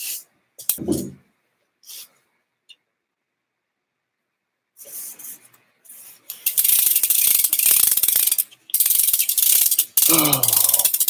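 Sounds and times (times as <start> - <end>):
bicycle freewheel clicking: 6.3 - 11.0.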